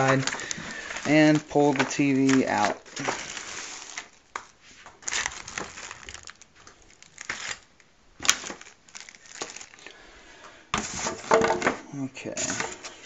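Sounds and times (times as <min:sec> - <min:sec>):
cardboard scraping and rustling: 0:00.0 - 0:06.4, 0:10.8 - 0:13.0.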